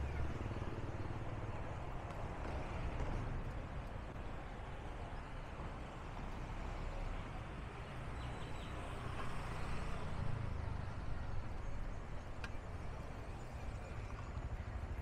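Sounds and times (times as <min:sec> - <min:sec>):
street traffic rumble: 0:00.0 - 0:15.0.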